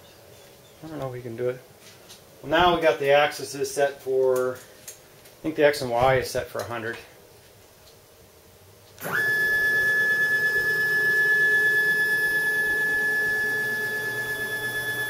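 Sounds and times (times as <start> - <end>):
stepper motor whine: 9.0 - 15.0.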